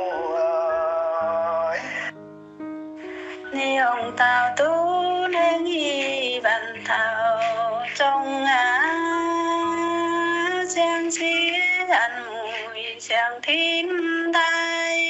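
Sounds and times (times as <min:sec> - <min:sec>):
instrumental backing: 0:00.0 - 0:14.9
woman singing slow song: 0:03.5 - 0:15.0.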